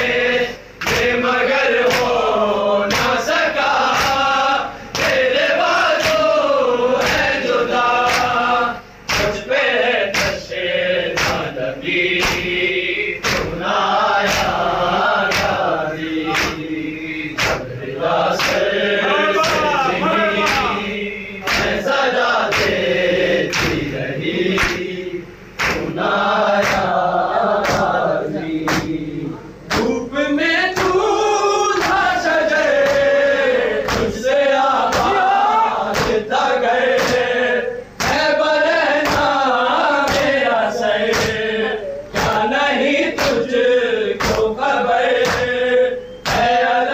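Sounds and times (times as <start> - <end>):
group of men chanting: 0.0 - 46.9
palms slapping chests: 9.0 - 9.4, 11.2 - 11.5, 12.2 - 12.6, 13.2 - 13.6, 15.3 - 15.6, 16.3 - 16.6, 17.4 - 18.7, 19.4 - 20.8, 25.6 - 25.9, 44.2 - 44.6
person chanting into a microphone: 14.4 - 25.2.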